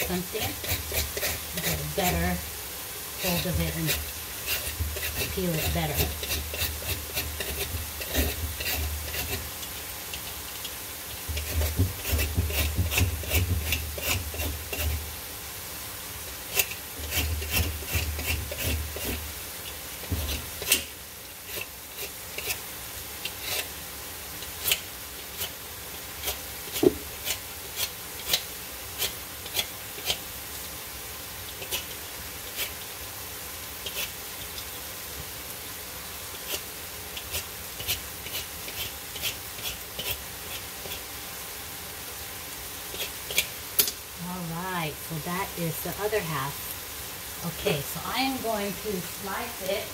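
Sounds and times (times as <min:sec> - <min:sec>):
vegetable peeler scraping squash skin: 0:00.1 - 0:02.2, 0:03.3 - 0:10.6, 0:11.3 - 0:15.0, 0:16.5 - 0:19.3, 0:20.0 - 0:23.8, 0:24.4 - 0:25.6, 0:26.2 - 0:30.2, 0:31.6 - 0:32.8, 0:33.8 - 0:34.5, 0:36.3 - 0:41.1, 0:42.9 - 0:43.9.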